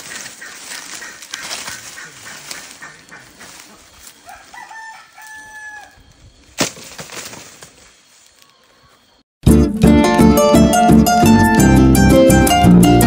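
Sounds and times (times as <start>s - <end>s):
rooster crowing: 4.2s - 6.1s
harp music: 9.5s - 13.0s.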